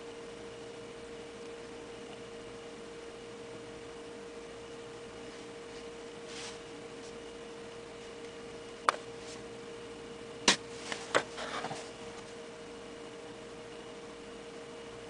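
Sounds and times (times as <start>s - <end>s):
faint electrical hum: 0.0s - 15.0s
soft rustle: 5.2s - 7.3s.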